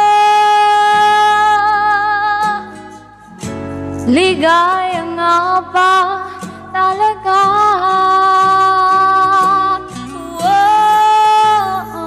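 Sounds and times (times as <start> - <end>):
woman singing a ballad: 0.0 - 3.2, 4.0 - 12.0
instrumental accompaniment: 7.9 - 12.0.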